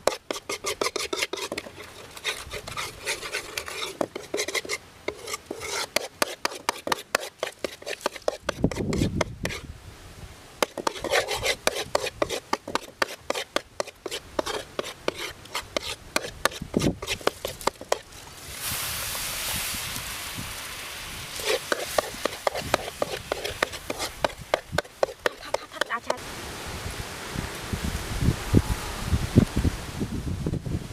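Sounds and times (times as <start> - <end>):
utensil scraping a wok: 0.0 - 9.7, 10.6 - 19.8, 21.2 - 26.2
steady sizzling hiss: 0.0 - 30.9.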